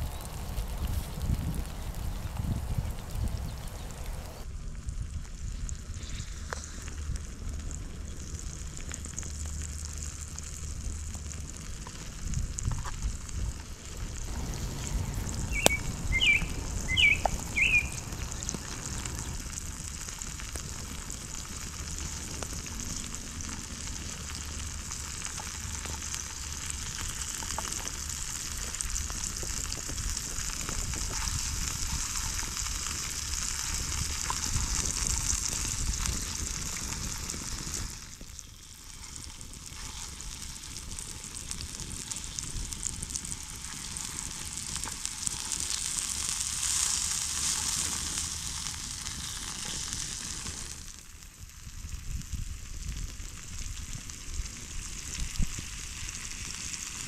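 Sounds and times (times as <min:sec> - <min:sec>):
mushrooms sizzling in oil: 0:00.0 - 0:04.4, 0:06.4 - 0:57.0
short high chirps: 0:14.8 - 0:18.1.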